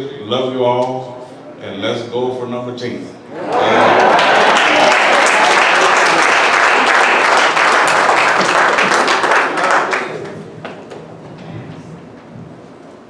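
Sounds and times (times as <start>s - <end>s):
congregation applauding: 3.5s - 10.9s.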